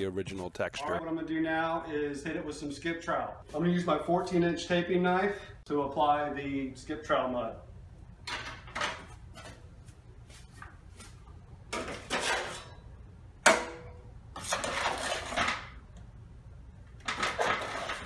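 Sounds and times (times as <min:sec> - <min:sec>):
knife scraping metal: 0:14.4 - 0:15.5.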